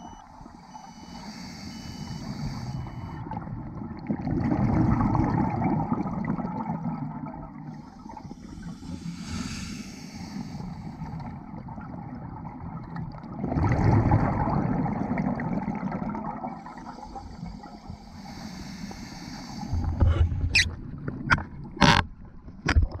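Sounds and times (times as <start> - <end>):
regulator inhalation hiss: 0.6 - 3.2, 8.1 - 11.1, 16.9 - 20.0
gurgling exhaled bubbles: 2.3 - 9.6, 11.0 - 17.7.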